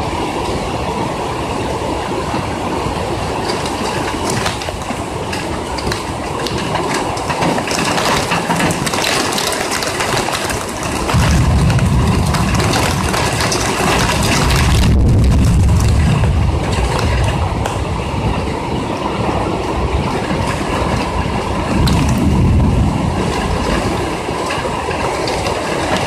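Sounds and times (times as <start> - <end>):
heavy rain on window ledge: 0.0 - 26.0
deep rumble: 10.8 - 26.0.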